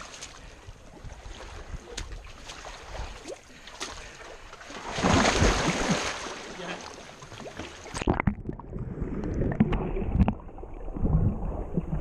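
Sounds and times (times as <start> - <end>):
water lapping among rocks: 0.0 - 8.2
water splash: 1.4 - 12.0.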